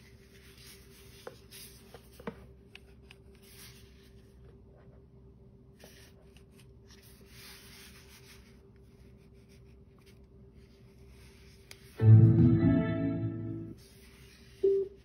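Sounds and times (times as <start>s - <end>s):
loud pitched tone: 12.0s - 13.8s.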